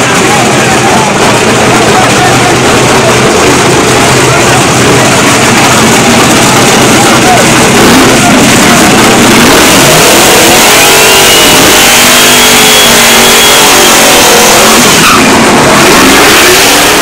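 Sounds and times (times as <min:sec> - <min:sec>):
engine revving hard: 0:00.0 - 0:17.0
tires squealing: 0:00.0 - 0:17.0.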